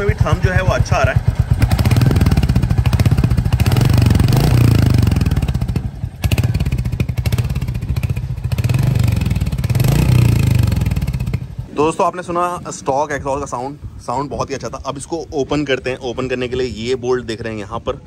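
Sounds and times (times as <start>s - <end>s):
motorcycle engine revving: 0.0s - 11.9s.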